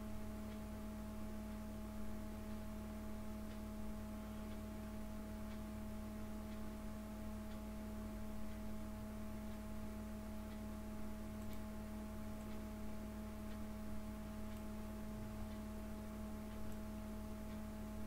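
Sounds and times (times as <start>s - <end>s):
electrical hum: 0.0s - 18.0s
faint ticks: 10.4s - 11.7s, 14.4s - 14.8s, 16.4s - 17.9s.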